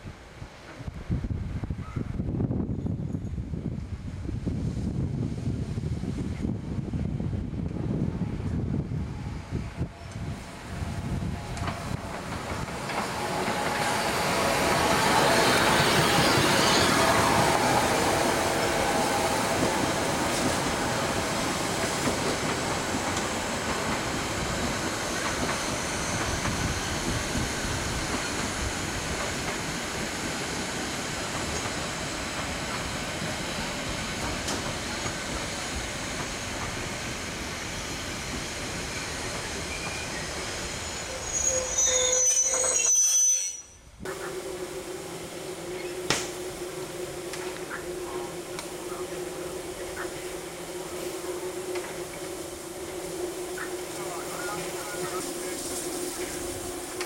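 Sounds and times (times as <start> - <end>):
steam locomotive rolling past: 0.0 - 57.0
train wheels clacking over track: 10.6 - 40.5, 47.2 - 57.0
high wheel squeal: 12.7 - 20.4, 38.8 - 48.4.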